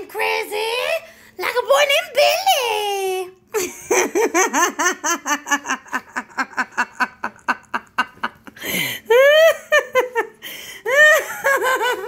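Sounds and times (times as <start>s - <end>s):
person giggling: 3.5s - 12.0s.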